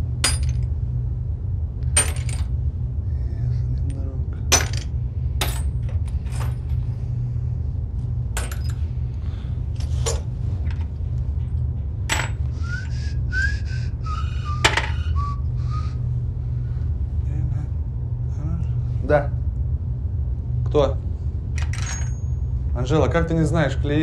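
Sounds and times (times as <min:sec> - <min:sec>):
steady low hum: 0:00.0 - 0:24.0
small metal parts clinking: 0:00.2 - 0:00.7, 0:02.0 - 0:02.5, 0:03.9 - 0:06.8, 0:08.4 - 0:08.9, 0:09.8 - 0:12.4, 0:21.6 - 0:22.4
person whistling: 0:12.5 - 0:16.0.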